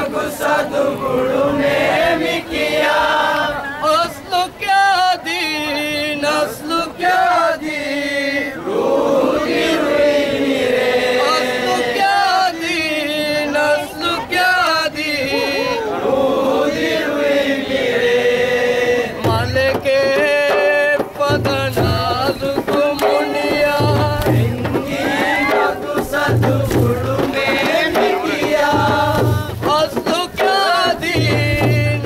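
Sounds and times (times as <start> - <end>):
men chanting in unison: 0.0 - 32.0
hand drums beating: 19.2 - 32.0.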